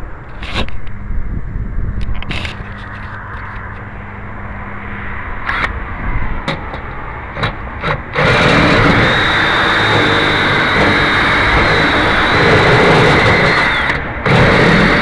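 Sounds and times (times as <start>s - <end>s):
cordless drill boring into metal: 7.8s - 15.0s.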